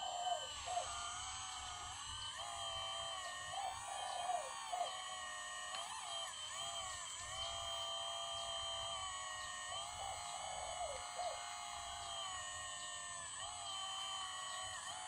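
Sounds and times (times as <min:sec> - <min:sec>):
hydraulic pump whine: 0:00.0 - 0:15.0.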